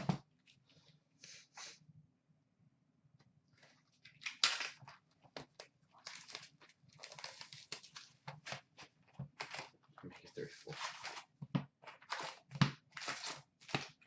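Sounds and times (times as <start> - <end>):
cardboard and wrappers tearing: 5.9 - 14.0.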